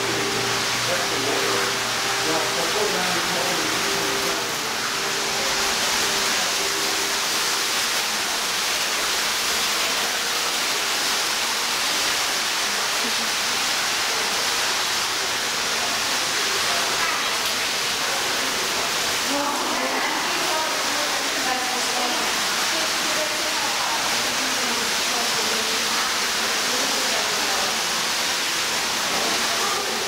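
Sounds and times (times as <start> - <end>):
faint voices: 11.8 - 30.0.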